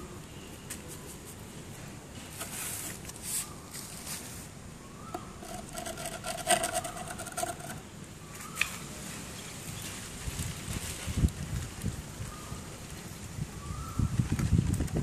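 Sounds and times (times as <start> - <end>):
screwdriver scraping plastic: 5.1 - 7.8
metal squeaking on plastic: 5.1 - 7.9.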